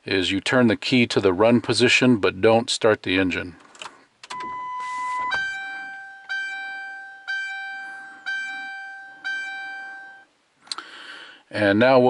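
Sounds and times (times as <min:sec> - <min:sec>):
bell-like seat belt dings: 0:04.3 - 0:10.3
steady electronic tone: 0:04.3 - 0:10.3.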